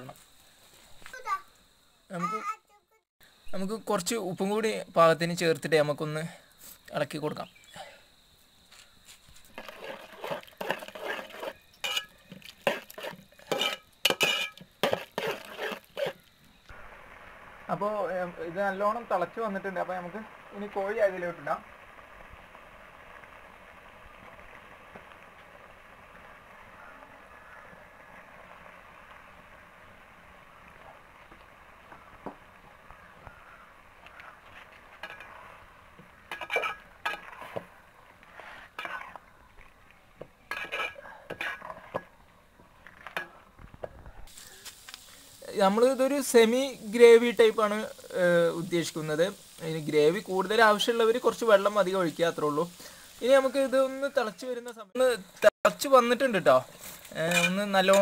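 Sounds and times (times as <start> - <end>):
steady low hiss: 3.2 - 58.0
metal ladle scraping a pot: 9.5 - 16.2, 35.0 - 35.6, 36.3 - 39.2, 40.5 - 42.1.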